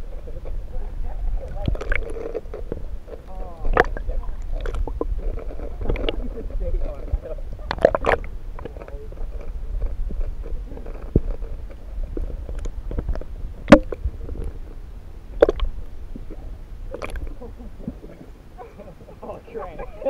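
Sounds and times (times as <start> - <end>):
muffled underwater rumble: 0.0 - 20.0
underwater clicks and knocks: 1.4 - 17.4.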